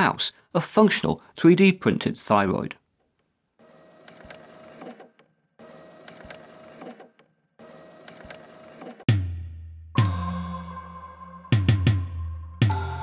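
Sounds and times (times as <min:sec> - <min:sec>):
printer-like mechanism running: 0:03.6 - 0:09.1
music: 0:09.1 - 0:13.0.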